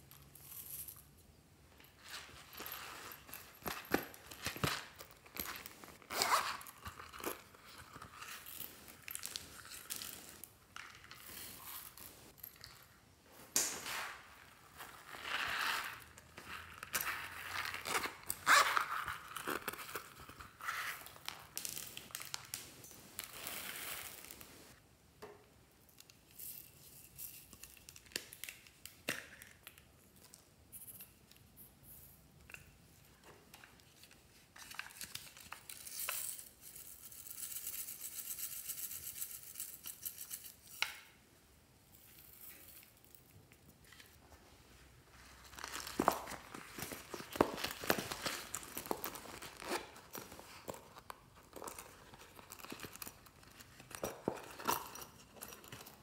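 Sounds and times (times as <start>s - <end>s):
rustling: 1.7s - 24.8s, 41.9s - 56.0s
zipper rasping: 5.4s - 10.4s, 17.0s - 19.4s.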